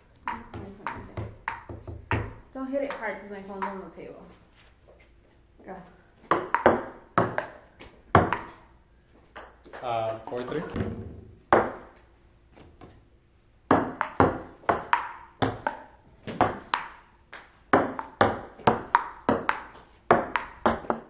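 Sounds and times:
ping-pong ball hits: 0.2 - 4.0, 6.3 - 8.7, 9.3 - 10.8, 11.5 - 12.1, 13.7 - 21.0.

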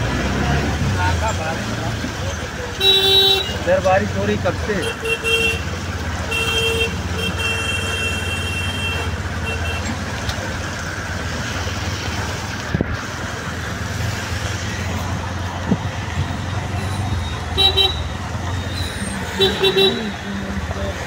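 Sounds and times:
auto-rickshaw engine running: 0.0 - 21.0
traffic on a wet road: 0.0 - 21.0
vehicle horn: 2.8 - 3.6, 4.8 - 5.7, 6.3 - 9.9, 17.5 - 18.1, 19.4 - 20.1.

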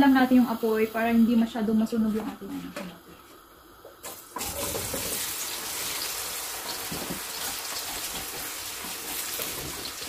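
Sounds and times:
food sizzling in frying pan: 0.0 - 2.0, 4.0 - 10.0
wooden spatula stirring: 6.8 - 10.0.

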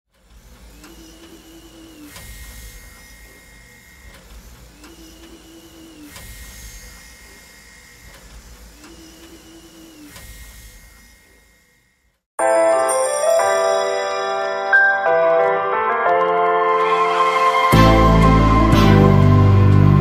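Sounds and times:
machine whirring and whining: 0.1 - 12.2.

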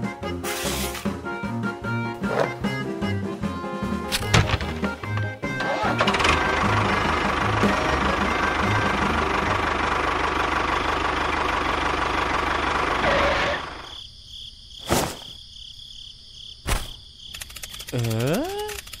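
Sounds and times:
tractor engine knocking rattle: 4.4 - 13.0.

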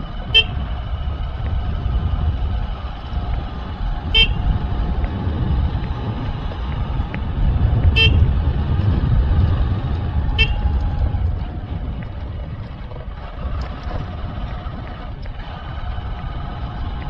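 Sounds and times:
motorbike engine: 0.0 - 17.0
wind rumble: 0.0 - 17.0
horn toots: 0.3 - 0.7, 4.0 - 4.6, 7.8 - 8.4, 10.3 - 10.8.

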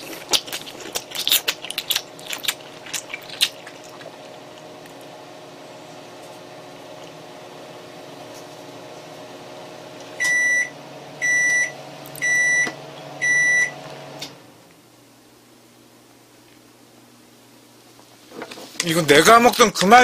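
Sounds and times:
microwave oven humming: 0.0 - 20.0
microwave high beeps: 10.2 - 13.9.

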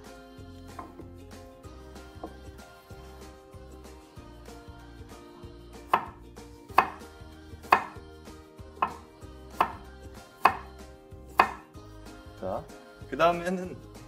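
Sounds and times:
knife chopping on wooden board: 0.7 - 1.1, 5.9 - 8.0, 8.8 - 10.7, 11.3 - 11.7.

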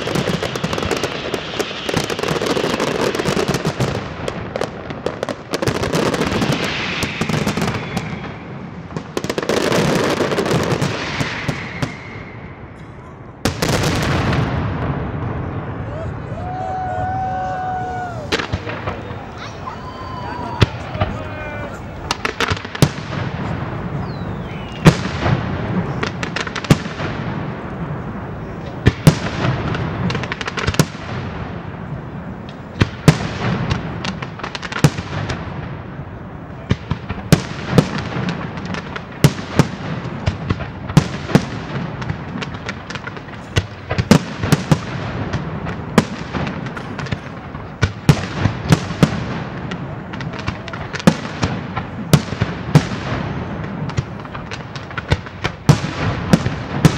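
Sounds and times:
fireworks bangs: 0.0 - 56.9
continuous crackle: 25.1 - 56.9.

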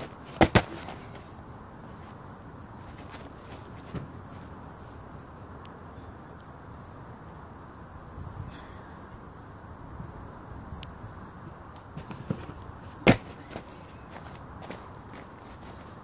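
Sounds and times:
gymnast landing on foam mat: 0.0 - 1.2, 12.0 - 14.8
outdoor background hiss: 0.0 - 16.0.

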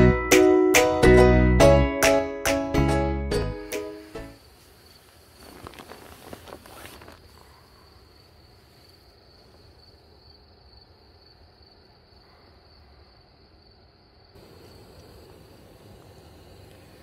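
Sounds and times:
rustling inside a tent: 3.5 - 10.3
insects chirring: 3.8 - 17.0.

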